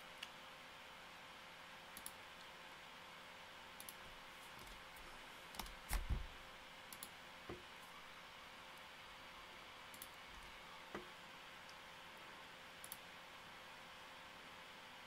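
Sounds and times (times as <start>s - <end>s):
faint steady hum: 0.0s - 15.0s
computer mouse and key clicks: 1.9s - 2.5s, 3.8s - 4.8s, 5.5s - 6.2s, 6.9s - 7.2s, 9.9s - 11.8s, 12.8s - 13.1s.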